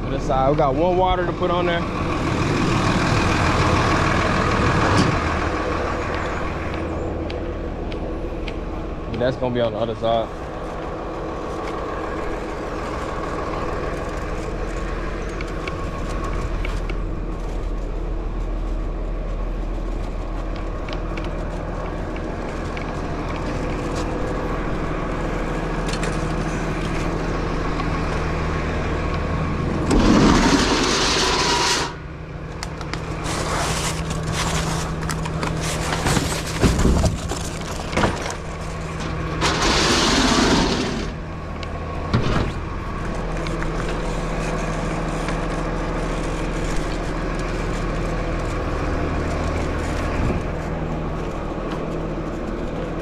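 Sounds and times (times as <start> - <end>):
mechanical hum with low tones: 0.0 - 53.0
loud scraping rush: 29.5 - 32.2, 38.9 - 41.3.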